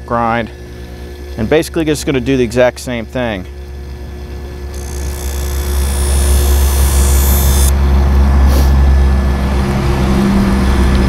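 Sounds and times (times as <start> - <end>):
bench buffer motor running: 3.5 - 8.2
knife hissing on spinning strop: 4.8 - 7.7, 8.5 - 8.7.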